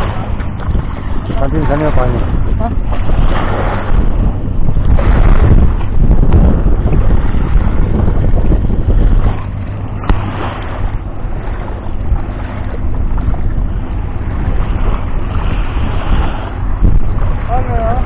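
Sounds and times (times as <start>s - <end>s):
water lapping at shoreline: 0.0s - 18.0s
wind buffeting microphone: 0.0s - 18.0s.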